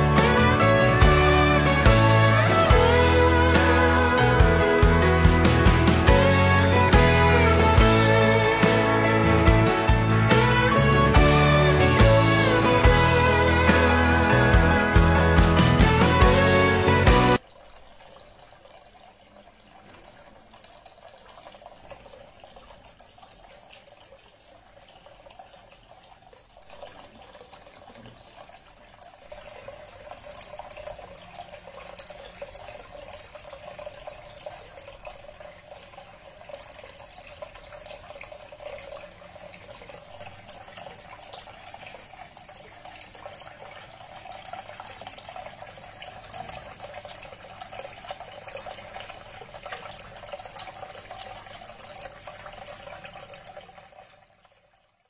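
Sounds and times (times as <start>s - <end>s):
fountain water splashing: 0.0s - 26.1s.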